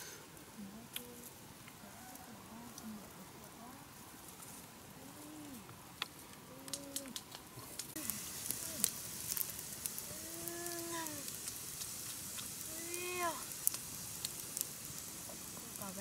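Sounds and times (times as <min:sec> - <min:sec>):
campfire crackling and popping: 0:00.0 - 0:16.0.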